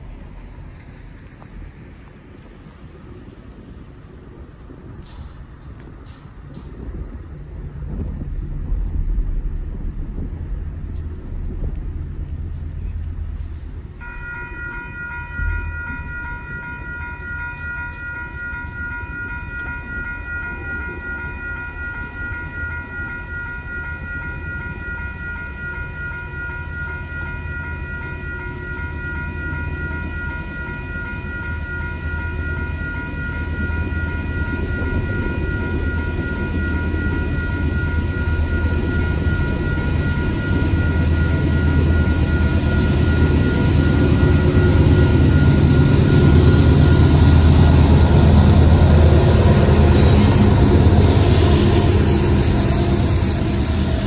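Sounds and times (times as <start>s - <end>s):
diesel locomotive rumble: 0.0s - 54.0s
crossing warning bell ringing: 4.5s - 54.0s.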